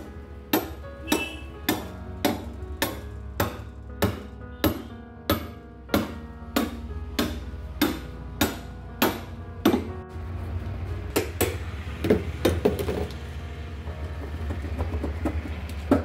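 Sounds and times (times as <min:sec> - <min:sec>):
hammer striking metal punch: 0:00.5 - 0:09.9, 0:11.1 - 0:12.9.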